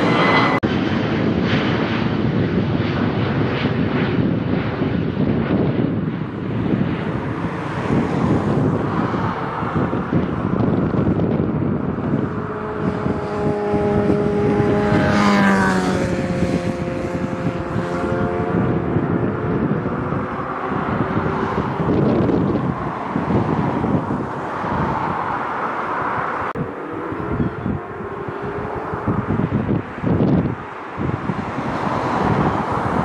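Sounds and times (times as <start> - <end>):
whining tones falling in pitch: 0.0 - 0.6, 6.2 - 31.3
jet engine rumble: 0.0 - 33.0
wind buffeting microphone: 0.0 - 33.0.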